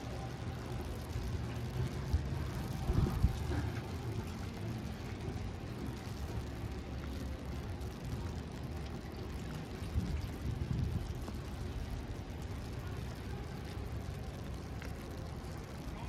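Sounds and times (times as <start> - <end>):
low rumble of traffic: 0.0 - 16.0.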